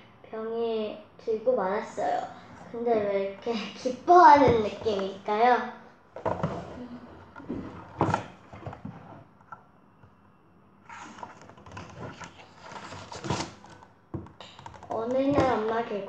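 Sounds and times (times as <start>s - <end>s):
paper rustling and sliding: 10.8s - 13.8s.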